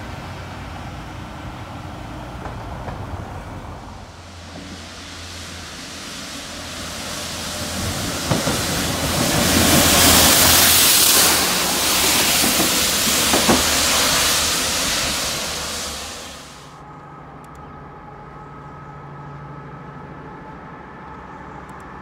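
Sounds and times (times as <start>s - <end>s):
locomotive running noise: 0.0s - 16.8s.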